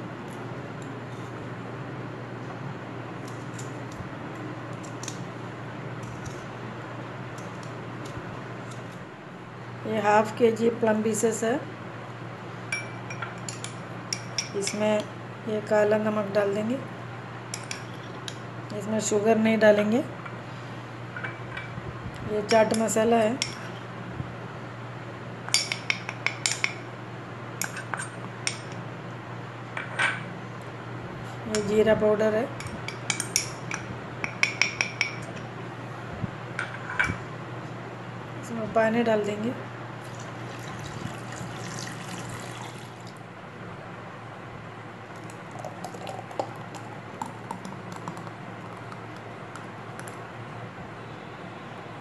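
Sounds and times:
liquid pouring: 40.0s - 43.2s, 45.2s - 49.0s.

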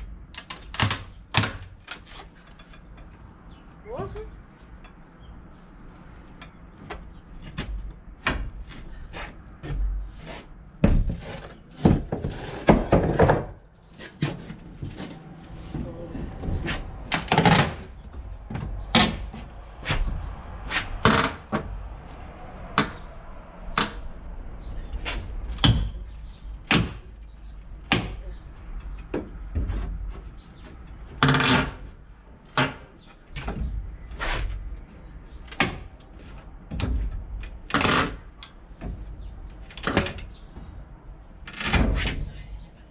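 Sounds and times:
rough noise: 8.7s - 35.2s.

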